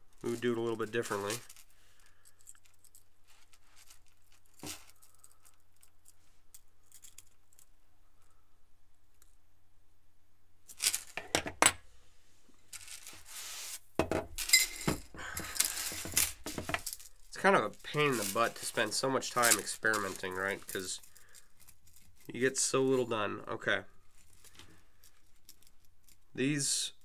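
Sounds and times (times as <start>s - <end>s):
chainmail rings clinking: 14.4s - 23.1s.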